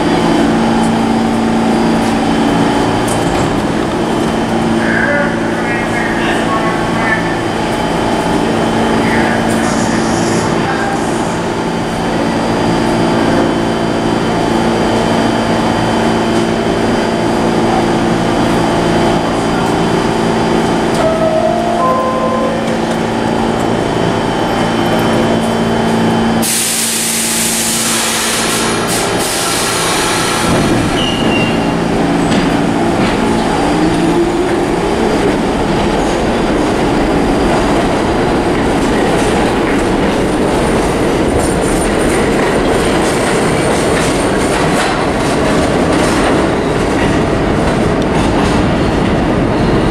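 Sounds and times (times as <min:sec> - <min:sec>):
train wheels rumbling and clattering: 0:00.0 - 0:21.5, 0:22.6 - 0:49.9
subway train electrical hum: 0:00.0 - 0:49.9
air brakes hissing: 0:26.4 - 0:31.2.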